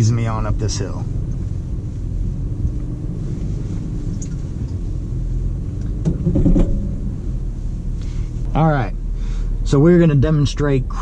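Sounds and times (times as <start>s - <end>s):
engine and drivetrain rumbling: 0.0s - 11.0s
short knocks: 5.9s - 7.0s.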